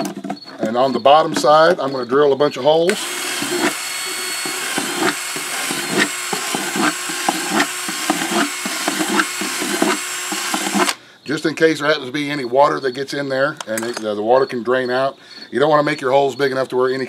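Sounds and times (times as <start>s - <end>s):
cordless drill motor running: 2.9s - 11.0s
drill bit crackling through plastic: 2.9s - 11.0s.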